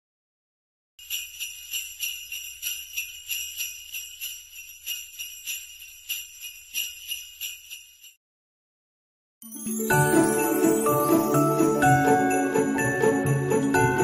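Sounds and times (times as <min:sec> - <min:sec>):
sleigh bells jingling: 0:01.0 - 0:08.2, 0:09.4 - 0:14.0.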